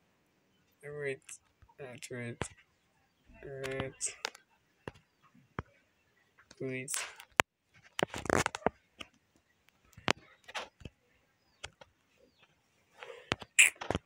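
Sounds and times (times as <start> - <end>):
fingertip tapping touchscreen: 3.4 - 4.3
soft breathing: 12.9 - 13.4.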